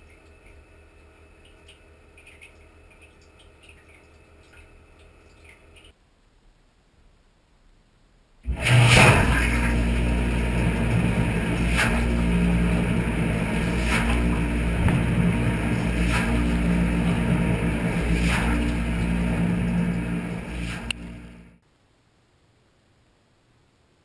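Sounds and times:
water spraying: 8.5s - 21.3s
dishwasher pump hum: 8.5s - 21.6s
swish of water: 11.4s - 21.0s.

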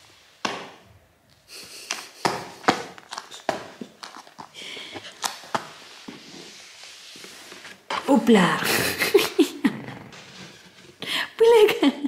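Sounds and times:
hands slapping tiled floor: 0.4s - 6.3s.

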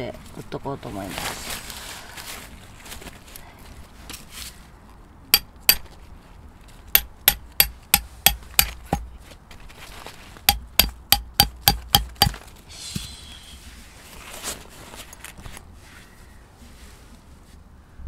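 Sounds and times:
hammer striking tent peg: 5.4s - 5.9s, 7.0s - 9.1s, 10.5s - 12.4s.

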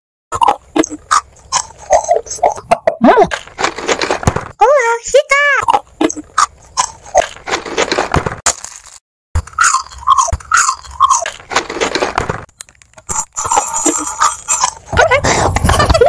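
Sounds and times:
mouth noises: 0.3s - 7.9s, 13.0s - 16.0s
crunchy bites and chewing: 0.4s - 2.1s, 5.7s - 13.4s.

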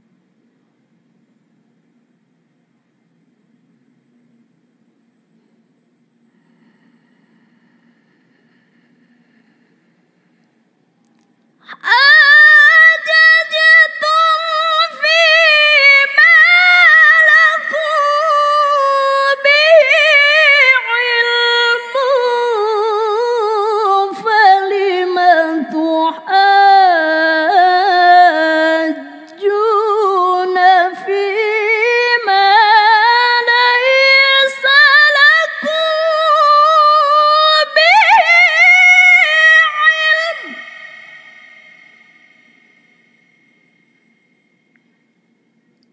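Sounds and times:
woman reciting melodically: 11.6s - 42.5s.

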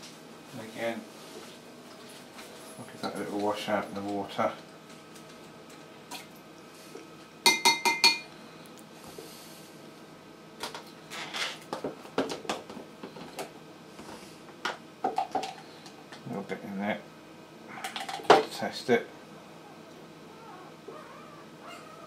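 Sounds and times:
glassware clinking: 7.5s - 8.3s.

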